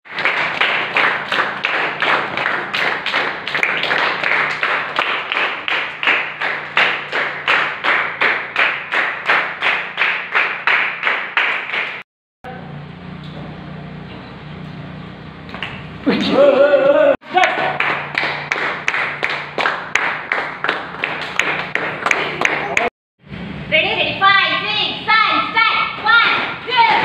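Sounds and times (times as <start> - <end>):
children clapping in unison: 0.1 - 12.0, 17.3 - 22.9.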